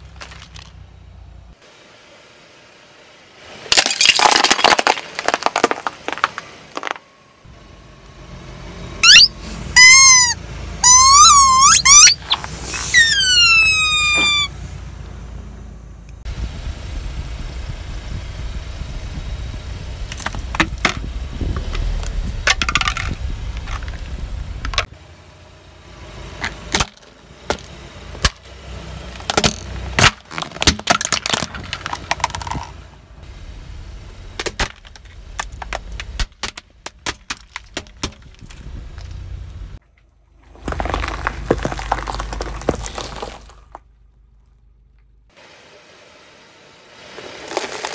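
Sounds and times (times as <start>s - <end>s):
car rolling with low rumble: 0.0s - 47.9s
plastic crunching and cracking: 3.7s - 7.0s, 29.2s - 32.7s, 34.4s - 38.6s, 40.5s - 43.8s
vinyl toys squealing: 9.0s - 14.6s.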